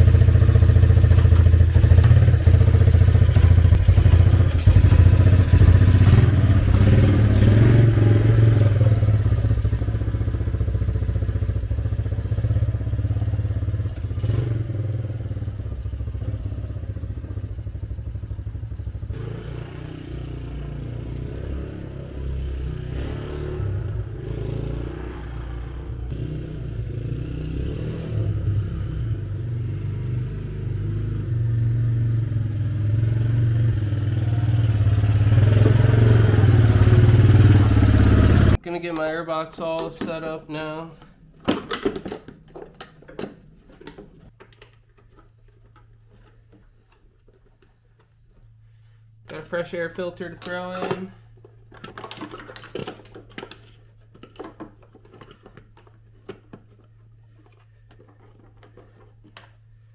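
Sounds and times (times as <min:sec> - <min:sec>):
engine running and revving: 0:00.0 - 0:38.6.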